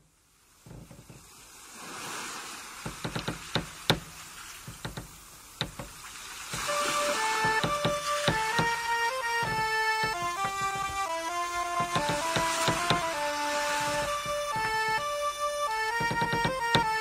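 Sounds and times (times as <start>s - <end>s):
surf washing on shore: 1.2s - 16.0s
sharp clicks and knocks: 2.8s - 6.7s, 7.3s - 17.0s
music with long held notes: 6.6s - 17.0s.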